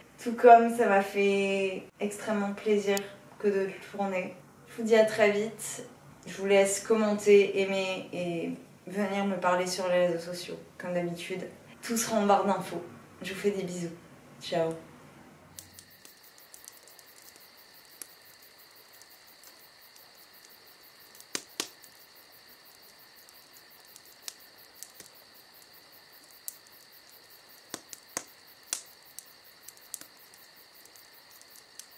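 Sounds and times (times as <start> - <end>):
crickets chirping: 15.5 - 31.9
scattered clicks: 15.6 - 22.1, 22.7 - 25.3, 26.2 - 31.9
faint regular ticking: 15.6 - 31.9.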